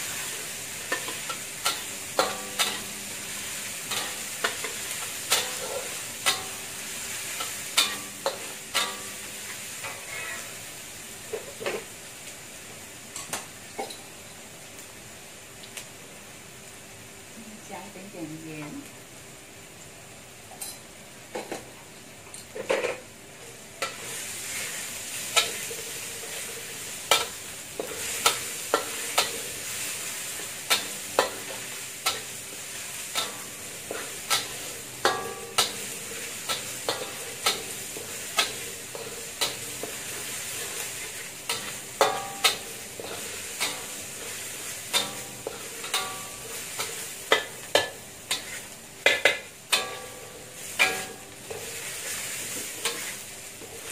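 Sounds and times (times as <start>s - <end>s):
metal spatula scraping wok: 0.0s - 10.7s, 23.8s - 53.9s
garlic sizzling in hot oil: 0.0s - 53.9s.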